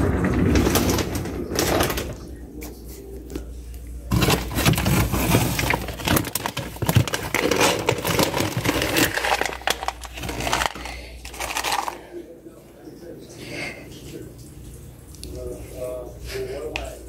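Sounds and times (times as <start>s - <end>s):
plastic bag crinkling: 4.0s - 12.2s
kibble rattling: 4.1s - 12.0s.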